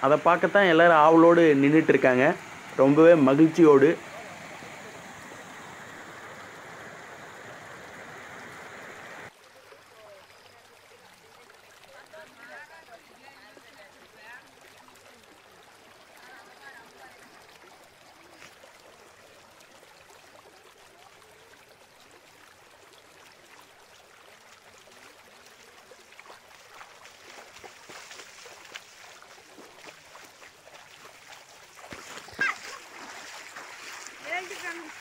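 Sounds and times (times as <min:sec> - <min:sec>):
floodwater rushing: 0:00.0 - 0:35.0
footsteps splashing in water: 0:24.4 - 0:35.0.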